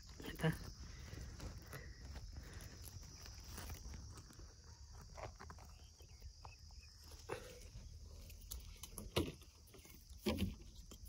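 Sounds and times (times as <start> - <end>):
soft footsteps on dry earth: 0.0 - 8.0.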